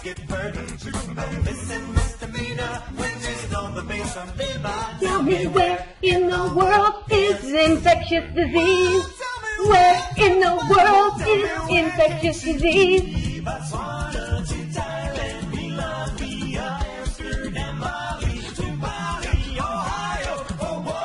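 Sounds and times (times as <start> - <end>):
backing music: 0.0 - 21.0
woman singing: 5.0 - 13.5.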